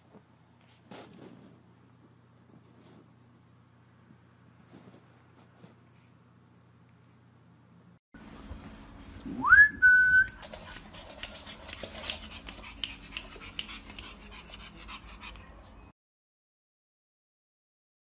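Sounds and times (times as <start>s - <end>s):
high rising whistle: 9.3s - 10.4s.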